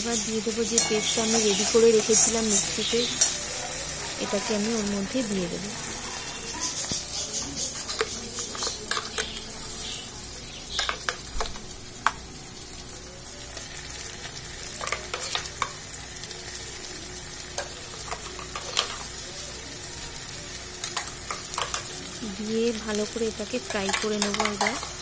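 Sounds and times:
onions sizzling in hot oil: 0.0s - 25.0s
metal spoon scraping steel pan: 0.2s - 3.5s, 6.0s - 9.4s.

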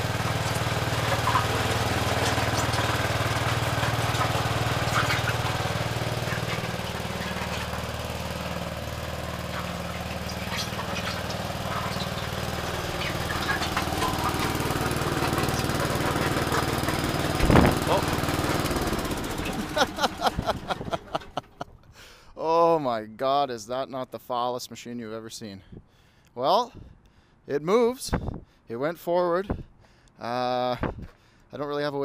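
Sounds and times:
small tractor engine running: 0.0s - 21.8s
sharp knocks from drive: 9.9s - 18.6s.

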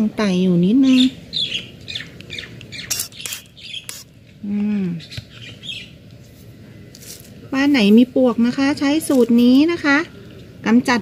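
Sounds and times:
small birds chirping: 0.6s - 6.1s.

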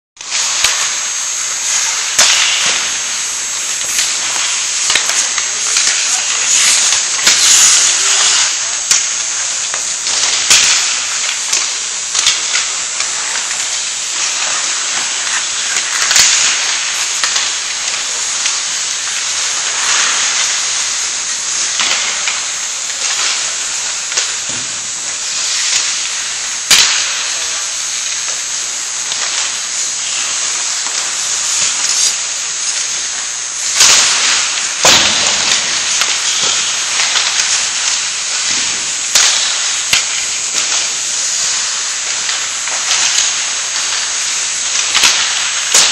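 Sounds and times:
skate blades scraping ice: 0.2s - 45.9s
steady high hiss: 0.2s - 45.9s
clacks of sticks and puck: 1.7s - 3.0s, 9.7s - 27.3s, 29.1s - 33.0s, 33.7s - 45.9s.

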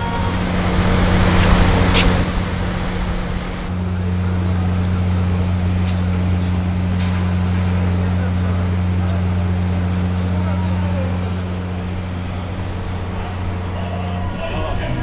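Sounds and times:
loud rushing noise: 0.0s - 4.0s
engine running with low drone: 0.0s - 15.0s.

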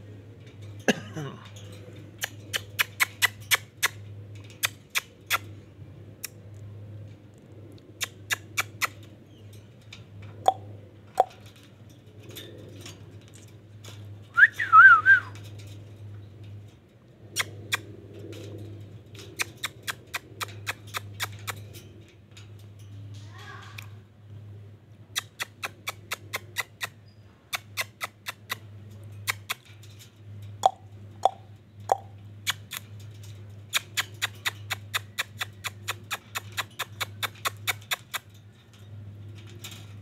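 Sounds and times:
quick sharp clicks: 25.2s - 28.6s, 30.6s - 32.8s, 33.7s - 38.3s.

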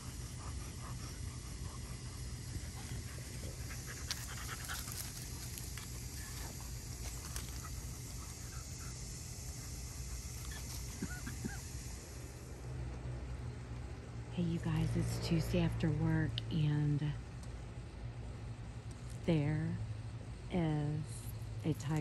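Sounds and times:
dog panting: 0.0s - 11.6s
steady low hum: 0.0s - 22.0s.

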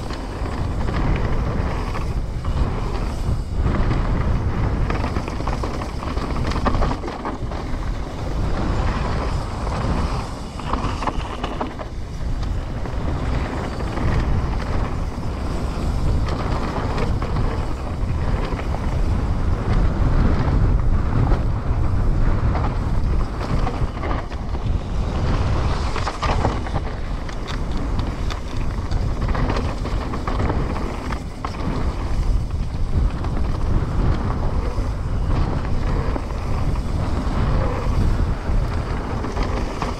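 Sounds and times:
mountain bike rolling and rattling: 0.0s - 39.9s
wind buffeting microphone: 0.0s - 39.9s
small knocks and clatters: 22.5s - 34.7s.

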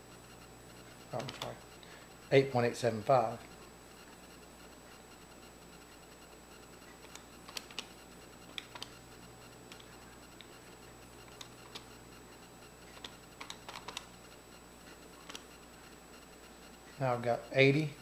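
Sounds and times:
calculator keys clicking: 1.1s - 1.6s, 7.0s - 7.9s, 8.5s - 9.0s, 11.3s - 11.9s, 12.9s - 14.1s, 15.2s - 15.4s.

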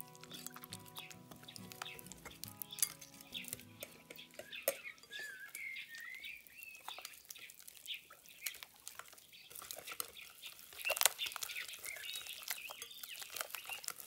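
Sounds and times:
music: 0.0s - 5.0s
utensil clicking against bowl: 0.1s - 4.9s.

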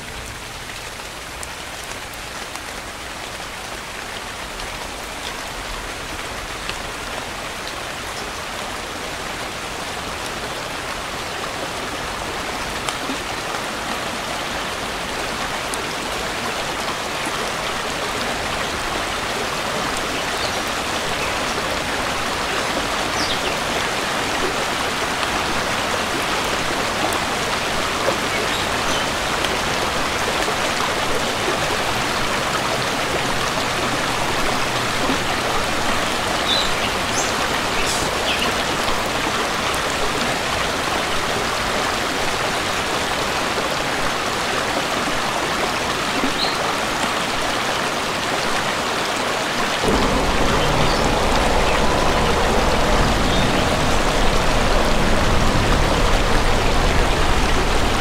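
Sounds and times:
rushing water: 0.0s - 58.0s
water drips: 49.8s - 58.0s.

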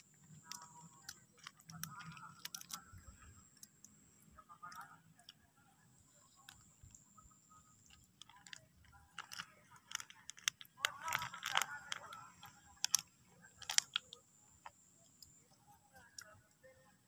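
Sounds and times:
plastic sachet crinkling: 0.4s - 3.7s, 7.8s - 14.2s.

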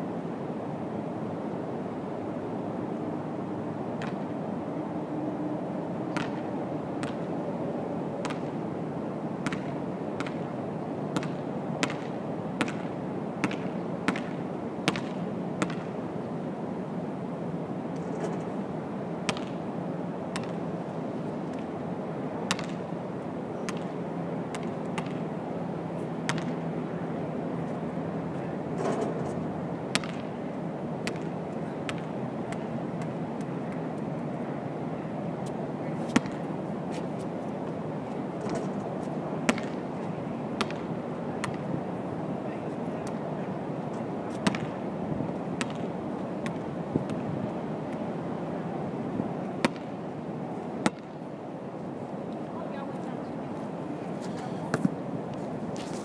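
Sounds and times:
basketball bouncing: 6.1s - 7.3s, 8.2s - 8.5s, 9.4s - 10.4s, 11.2s - 15.9s, 19.3s - 19.5s, 20.3s - 20.6s, 22.5s - 22.8s, 24.5s - 25.2s, 26.3s - 26.6s, 29.9s - 30.3s, 39.5s - 39.8s, 40.6s - 41.6s, 44.4s - 44.7s, 45.6s - 45.8s.

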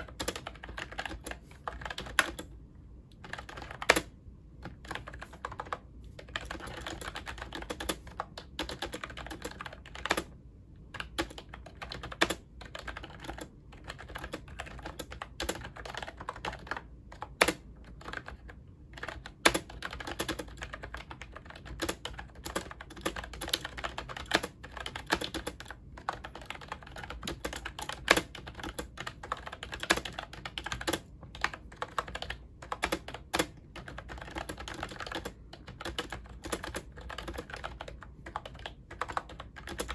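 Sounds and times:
fast keyboard typing: 0.0s - 2.5s, 3.1s - 39.9s.

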